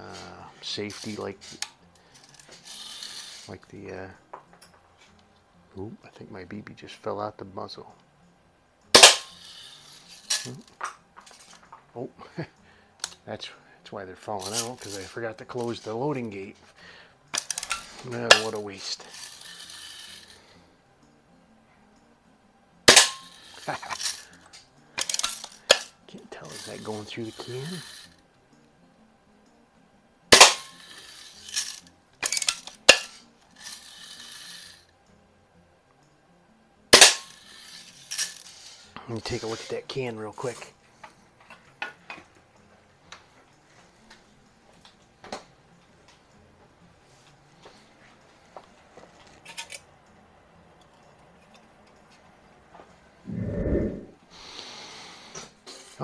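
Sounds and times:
bb gun shot crack: 9.0s - 9.3s, 30.3s - 30.7s.

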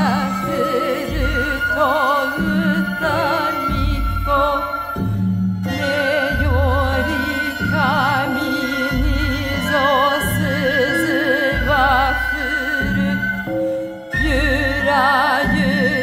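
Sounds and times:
person singing with vibrato: 0.0s - 16.0s.

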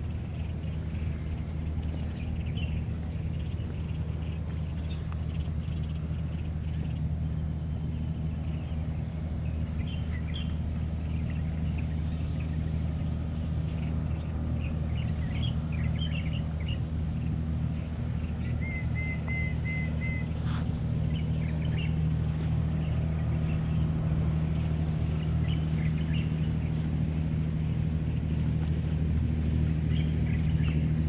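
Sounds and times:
low engine drone: 0.0s - 31.0s
small birds chirping: 0.0s - 31.0s
whistled bird notes: 17.8s - 20.3s.

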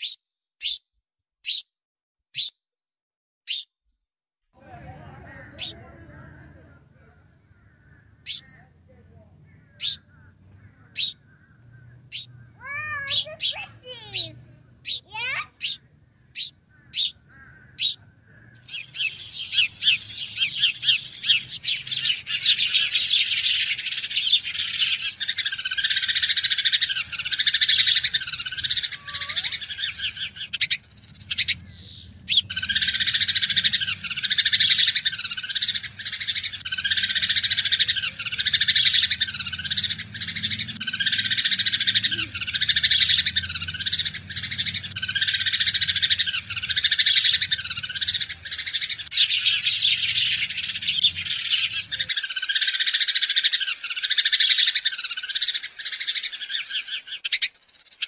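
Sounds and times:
birds chirping and tweeting: 0.0s - 0.8s, 1.4s - 1.7s, 3.5s - 58.0s.

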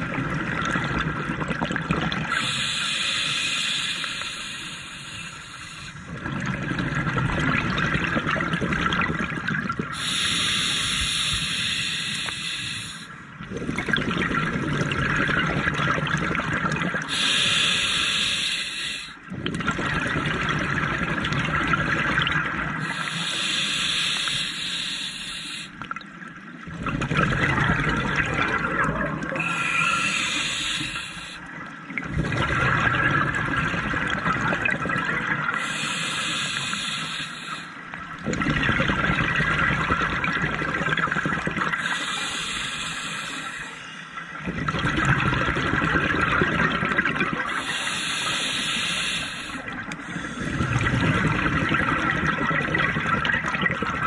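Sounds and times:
gurgling exhaled bubbles: 0.0s - 2.6s, 6.0s - 11.4s, 13.4s - 18.0s, 19.3s - 23.4s, 25.9s - 36.8s, 38.0s - 43.3s, 44.3s - 54.0s
regulator hissing inhale: 2.3s - 6.1s, 9.9s - 13.2s, 17.1s - 19.2s, 22.8s - 25.8s, 29.4s - 31.5s, 35.6s - 37.8s, 41.8s - 44.4s, 47.5s - 50.8s.

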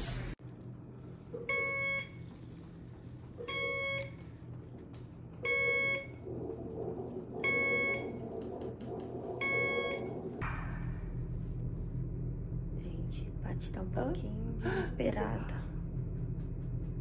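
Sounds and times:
equipment alarm beeping: 1.4s - 2.4s, 3.4s - 4.3s, 5.4s - 6.3s, 7.4s - 8.3s, 9.4s - 10.4s.

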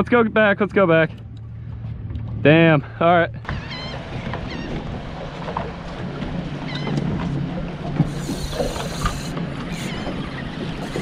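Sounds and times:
boat motor running: 0.0s - 11.0s
water noise: 0.0s - 11.0s
wind: 0.0s - 11.0s.

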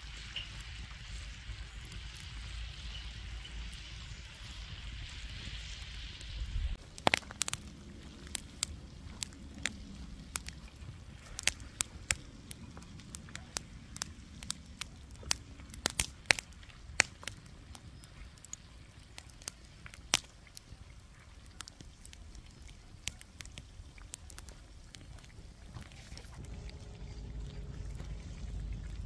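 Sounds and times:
pops and crackles: 4.4s - 26.8s
low rumble: 26.2s - 29.0s.

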